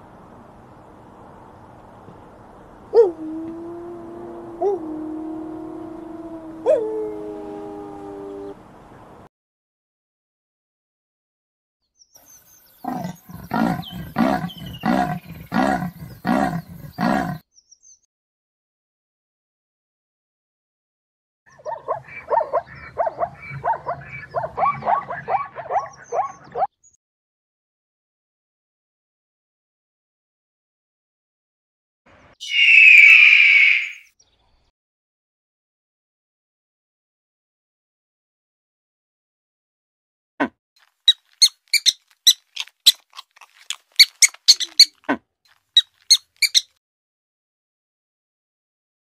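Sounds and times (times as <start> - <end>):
hyena yelping: 12.8 - 17.4, 44.5 - 44.9
rabbit squeaking: 41.1 - 45.0, 45.8 - 46.7.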